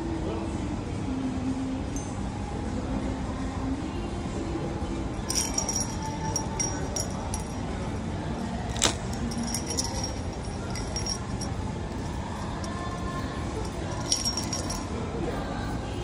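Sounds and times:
shop background noise: 0:00.0 - 0:16.0
metal key rings clinking: 0:05.3 - 0:07.7, 0:08.7 - 0:15.0.

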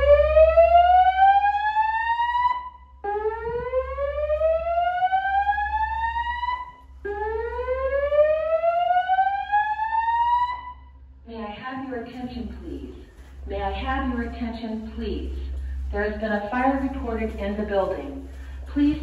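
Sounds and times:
fire alarm whoop tone: 0:00.0 - 0:11.0.

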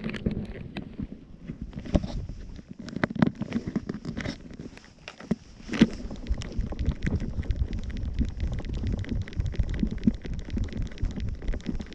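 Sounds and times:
scratchy clicks: 0:02.9 - 0:11.9
wind buffeting microphone: 0:05.4 - 0:11.9.

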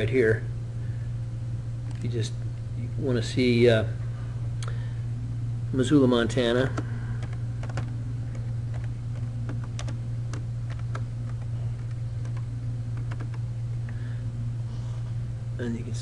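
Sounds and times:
steady low hum: 0:00.0 - 0:16.0
keyboard keystroke clicks: 0:07.2 - 0:12.4, 0:13.0 - 0:13.4.

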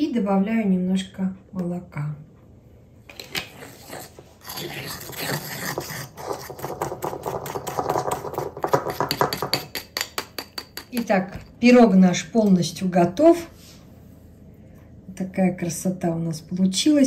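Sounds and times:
spoon scraping glaze in bowl: 0:03.3 - 0:11.5.

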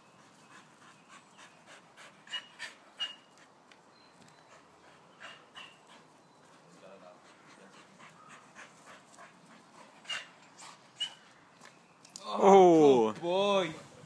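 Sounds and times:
dog panting: 0:00.0 - 0:03.6, 0:04.4 - 0:11.1.

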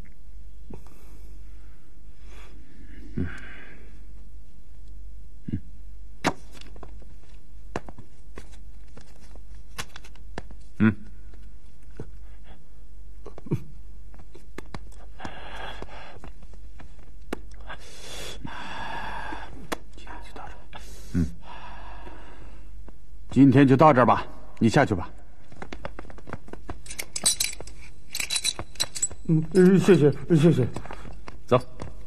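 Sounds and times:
steady low hum: 0:00.0 - 0:32.0
breathy hiss: 0:17.6 - 0:19.6.

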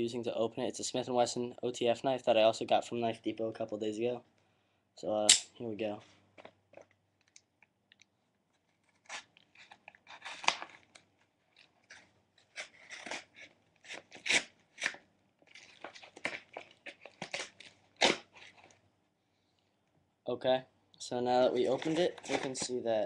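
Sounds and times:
paper envelope tearing: 0:08.8 - 0:10.9, 0:11.9 - 0:18.7, 0:21.6 - 0:22.8.

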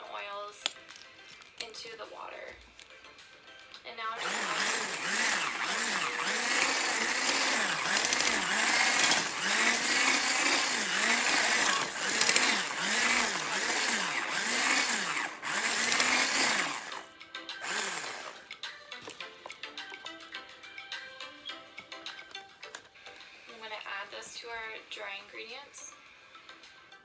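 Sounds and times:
stick blender motor running: 0:04.1 - 0:18.5.

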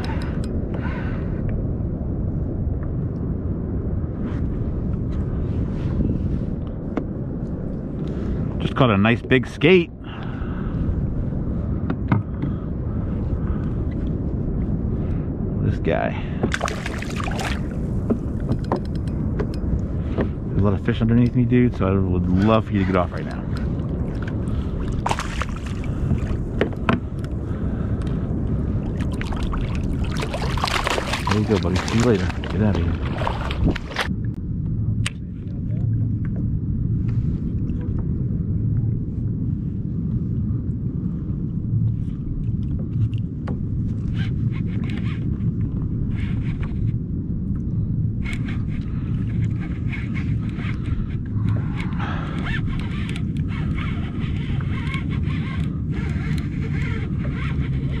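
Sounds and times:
wind buffeting microphone: 0:00.0 - 0:58.0
water lapping against kayak hull: 0:16.4 - 0:20.4, 0:22.3 - 0:34.1
faint clicks: 0:47.5 - 0:58.0.

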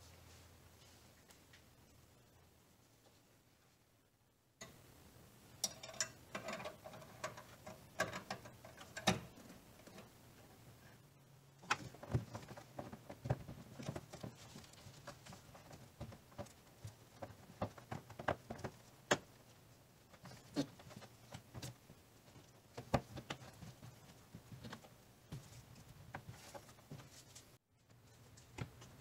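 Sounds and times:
hard plastic clicks and rustles: 0:05.6 - 0:10.1.

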